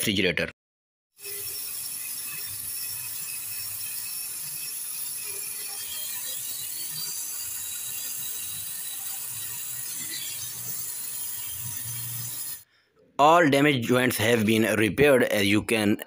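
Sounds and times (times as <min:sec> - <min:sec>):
torch flame hissing: 0:01.2 - 0:12.7.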